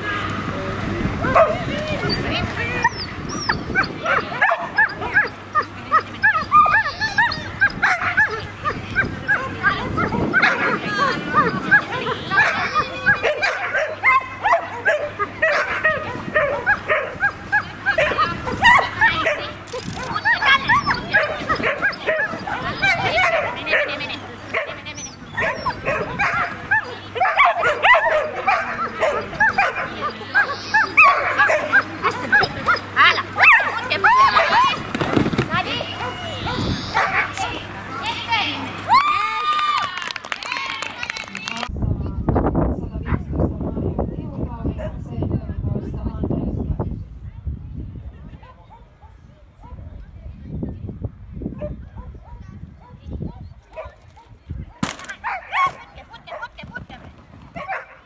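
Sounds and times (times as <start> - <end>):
dog barking in high-pitched yips: 2.8 - 23.9, 25.4 - 34.8, 36.0 - 37.5, 55.2 - 56.5.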